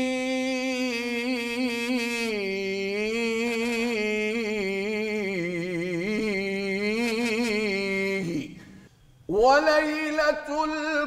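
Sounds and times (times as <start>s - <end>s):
man singing unaccompanied: 0.0s - 8.7s, 9.3s - 11.0s.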